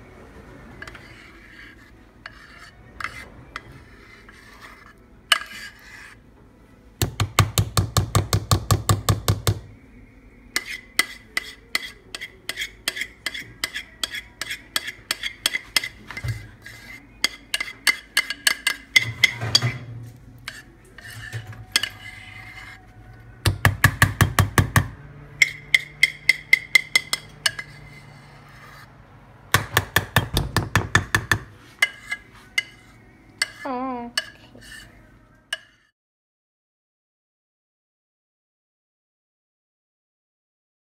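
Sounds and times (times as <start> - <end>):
utensil scraping batter from bowl: 0.7 - 6.3, 10.5 - 23.2, 25.4 - 28.9, 31.3 - 35.9.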